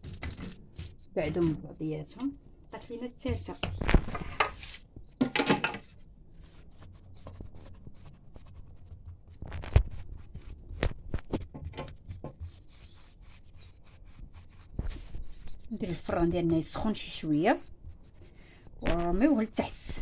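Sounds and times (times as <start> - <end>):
hands rolling dough: 6.4 - 20.0.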